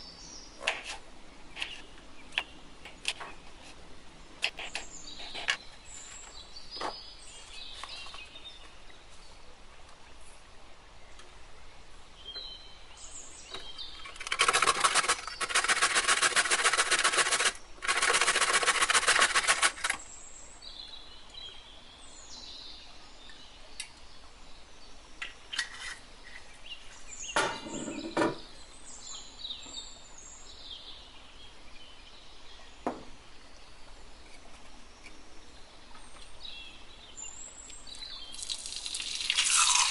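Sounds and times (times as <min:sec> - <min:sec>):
birds chirping: 0:26.2 - 0:39.9.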